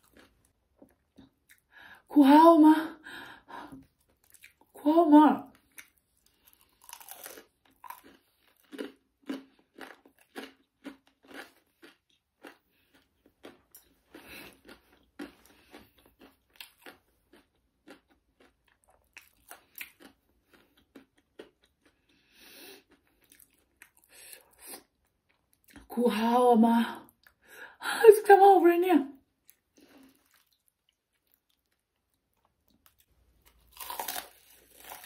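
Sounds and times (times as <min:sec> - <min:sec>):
crunchy chewing: 0:00.0 - 0:01.6, 0:05.6 - 0:25.8, 0:29.4 - 0:35.0.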